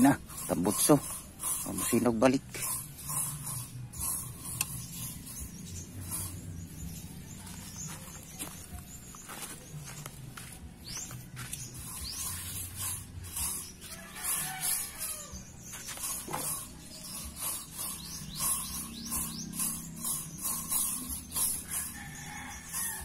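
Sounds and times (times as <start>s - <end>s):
spray bottle hissing bursts: 0.1s - 7.1s, 11.7s - 22.0s.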